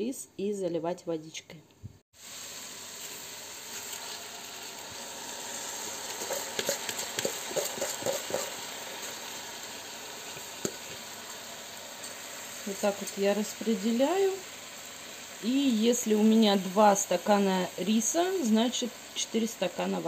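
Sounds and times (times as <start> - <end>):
food sizzling in a pan: 2.2 - 20.0
wet rice crackling as it lands: 6.0 - 9.2, 10.2 - 11.2.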